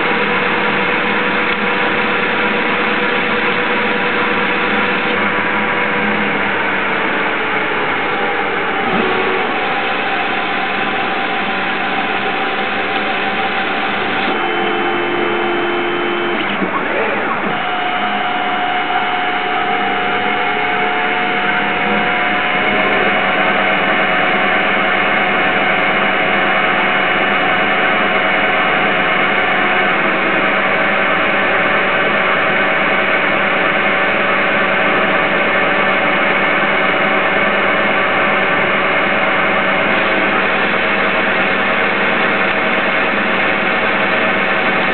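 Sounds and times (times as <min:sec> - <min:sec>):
lathe machine whine: 0:00.0 - 0:44.9.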